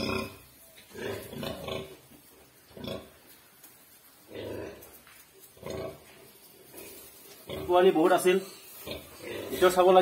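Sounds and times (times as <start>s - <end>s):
pig grunting: 0.0s - 2.0s, 8.8s - 10.0s.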